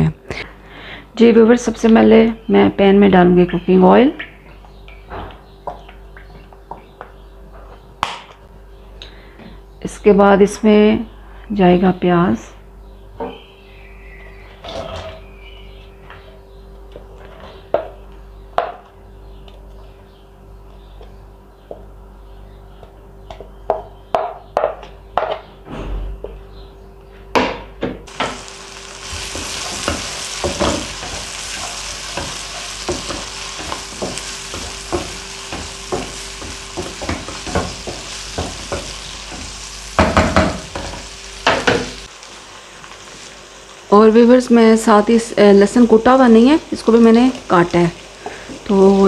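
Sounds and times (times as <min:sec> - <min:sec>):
onions sizzling in oil: 0:28.1 - 0:49.0.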